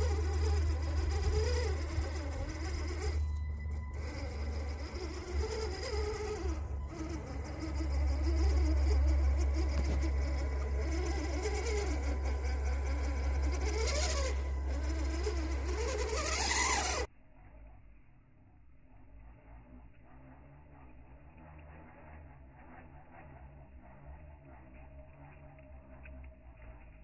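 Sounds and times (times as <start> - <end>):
rc car electric motor whining: 0.0 - 17.7.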